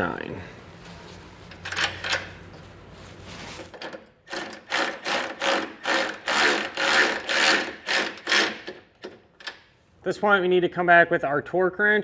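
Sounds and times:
hand ratchet clicking: 0:04.3 - 0:09.6.

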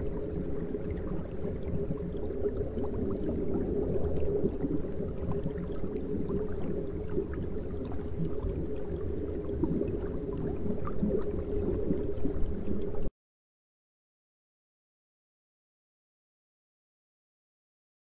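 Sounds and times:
water bubbling and churning: 0:00.0 - 0:13.1.

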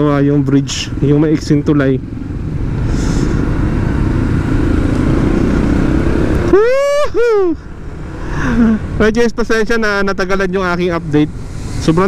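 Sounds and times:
motorcycle engine rumble: 0:00.0 - 0:12.0.

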